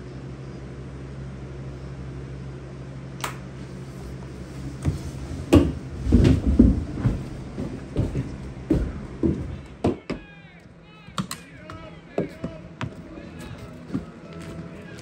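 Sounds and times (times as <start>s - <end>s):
low hum: 0.0s - 15.0s
sharp click: 3.2s - 3.4s
low thumps and knocks: 4.8s - 10.2s.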